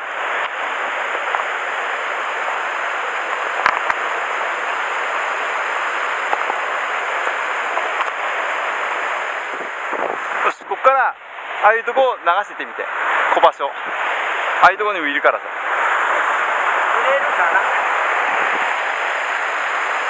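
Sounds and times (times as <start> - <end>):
stream running over rocks: 0.1 - 10.2.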